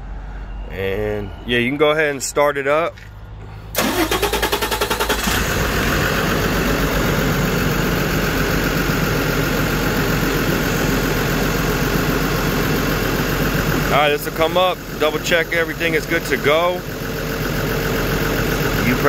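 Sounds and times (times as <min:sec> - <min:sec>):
diesel engine idling: 0:00.0 - 0:19.0
diesel engine starter cranking: 0:03.7 - 0:16.7.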